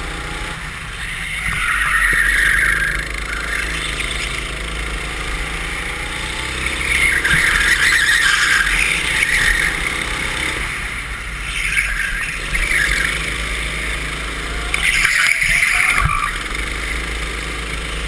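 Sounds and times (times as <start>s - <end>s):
go-kart engine running: 0.0s - 18.0s
tyre squeal: 0.9s - 4.6s, 6.4s - 10.6s, 11.4s - 13.4s, 14.4s - 16.5s.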